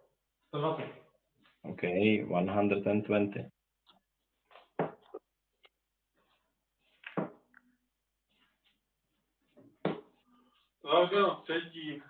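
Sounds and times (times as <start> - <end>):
darts thudding into dartboard: 9.8 - 10.1.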